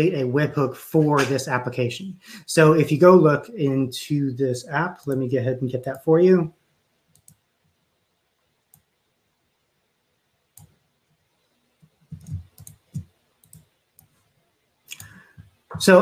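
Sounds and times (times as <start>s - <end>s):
computer mouse and keyboard clicks: 12.1s - 14.2s.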